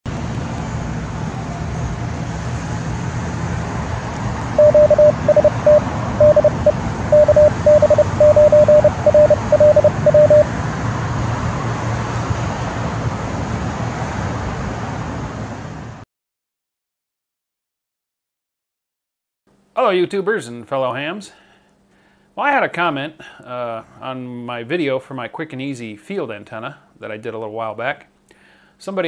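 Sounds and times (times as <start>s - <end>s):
morse code beeps: 4.6s - 10.5s.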